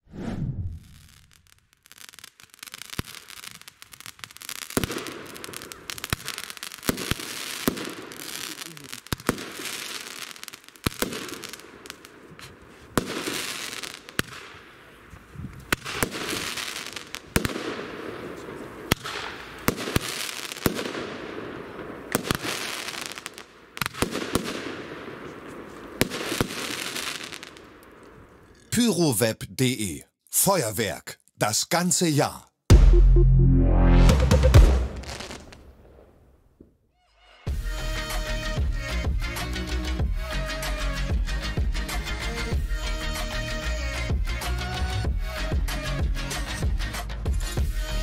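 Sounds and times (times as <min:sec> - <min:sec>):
firework shots banging: 0:04.8 - 0:08.4, 0:15.6 - 0:27.5.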